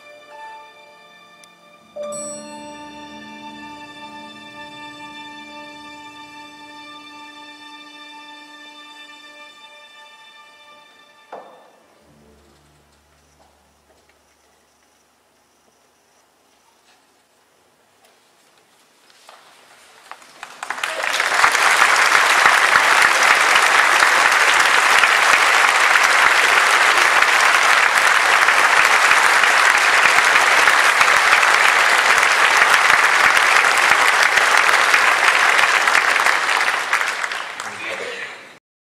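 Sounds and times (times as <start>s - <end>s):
audience applauding: 20.1s - 38.6s.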